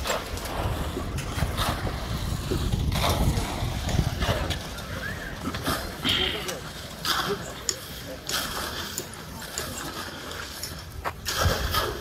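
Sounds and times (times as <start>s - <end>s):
wind buffeting microphone: 0.0s - 6.4s, 10.6s - 12.0s
shovels scraping into gravel: 0.0s - 12.0s.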